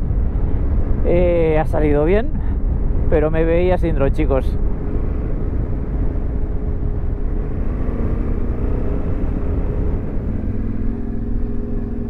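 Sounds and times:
wind and road rumble: 0.0s - 12.0s
motorcycle engine running: 4.5s - 12.0s.

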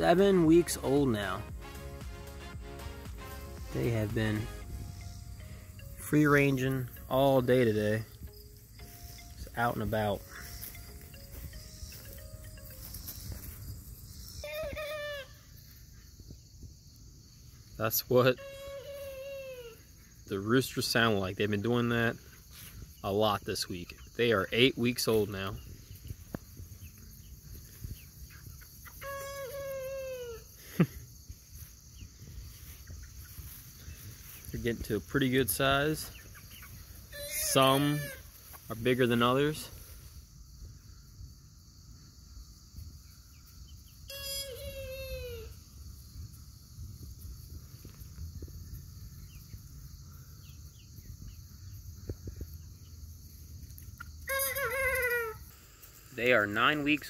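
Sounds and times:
high insect drone: 0.0s - 57.0s
chicks chirping and clucking: 8.8s - 14.4s, 25.1s - 29.0s, 32.0s - 38.0s
sharp chicken squawk: 36.6s - 38.2s.

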